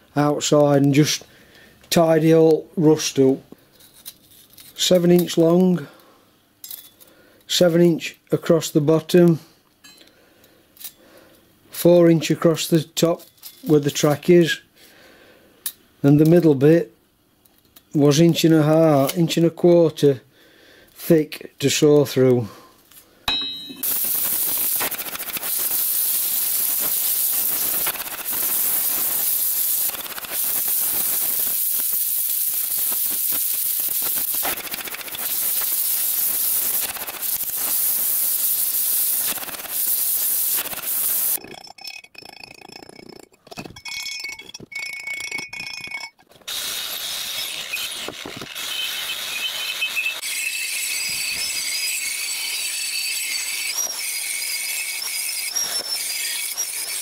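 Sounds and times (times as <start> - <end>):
metallic ringing: 23.3 - 24.1
gas torch flame hissing: 23.8 - 41.4, 46.5 - 51.6.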